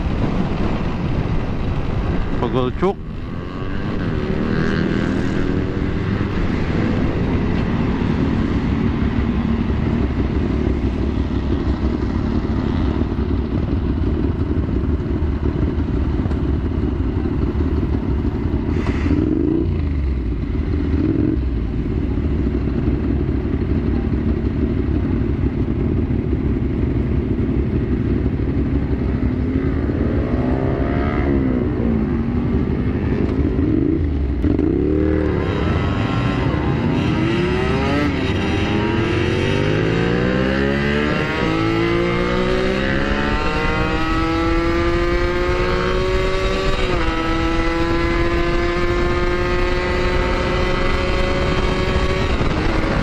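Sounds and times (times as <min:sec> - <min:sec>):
motorcycle engine idling and revving: 0:00.0 - 0:53.0
other motorcycles: 0:00.0 - 0:53.0.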